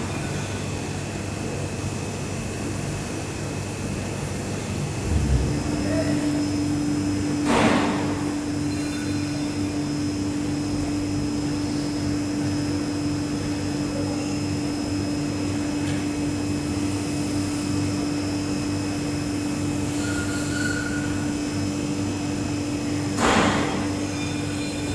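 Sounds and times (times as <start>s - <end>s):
machinery humming: 3.6s - 24.9s
throbbing rumble: 5.0s - 5.9s.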